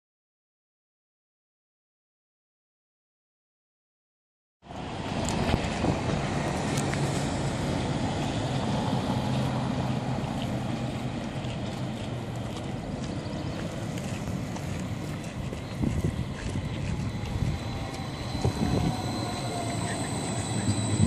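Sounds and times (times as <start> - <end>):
bus driving past: 4.6 - 21.0
rush of passing traffic: 4.6 - 21.0.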